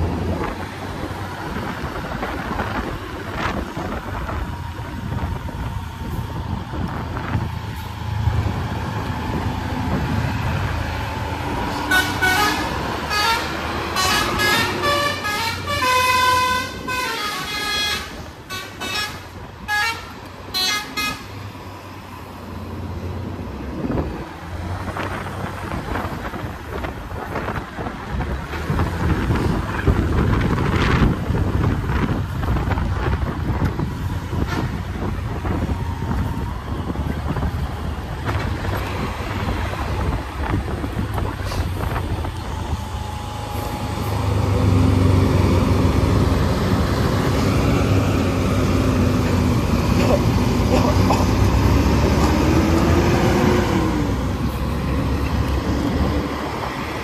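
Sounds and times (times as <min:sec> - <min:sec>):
vehicle engine and road noise: 0:00.0 - 0:57.0
bus horn toots: 0:11.8 - 0:21.4, 0:34.4 - 0:34.9.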